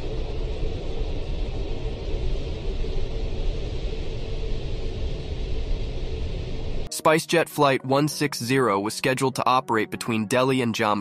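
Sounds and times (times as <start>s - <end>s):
airliner cabin rumble and hiss: 0.0s - 6.9s
faint steady hum: 0.0s - 6.9s.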